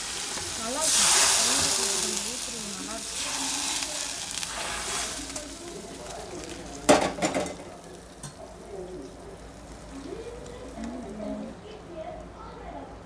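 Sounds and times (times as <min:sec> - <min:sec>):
oil sizzling in a pan: 0:00.0 - 0:11.8
ladle clanking against pan: 0:06.8 - 0:08.4.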